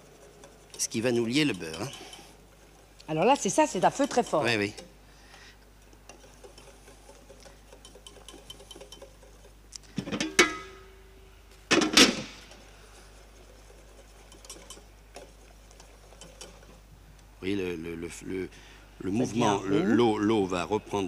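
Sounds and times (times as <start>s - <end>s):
whisk clanking against pan: 0.0s - 2.4s, 3.1s - 5.0s, 6.0s - 9.6s, 13.3s - 16.8s
whisk clicking in saucepan: 0.0s - 9.6s, 13.3s - 16.8s
boiling water: 0.0s - 10.8s, 12.4s - 17.6s.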